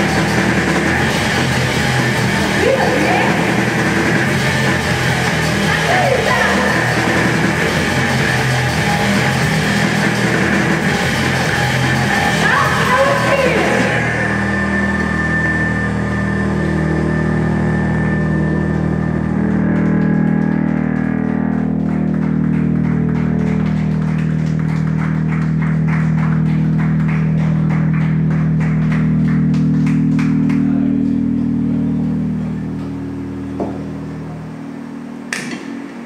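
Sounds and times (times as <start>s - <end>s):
fast ticking beat: 0.0s - 14.2s
low sustained drone: 0.0s - 36.0s.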